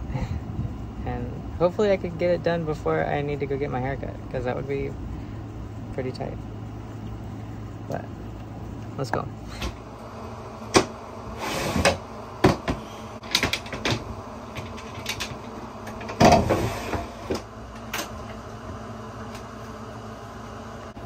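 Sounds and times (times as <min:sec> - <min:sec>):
steady low hum: 0:00.0 - 0:21.0
shop vacuum knocking and scraping: 0:10.7 - 0:14.9, 0:16.0 - 0:17.5.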